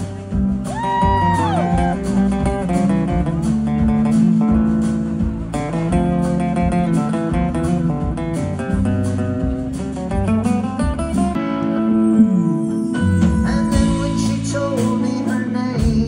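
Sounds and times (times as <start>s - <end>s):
drums: 0.0s - 11.5s, 13.0s - 16.0s
strummed acoustic guitar: 0.0s - 16.0s
sliding high lead note: 11.4s - 14.4s.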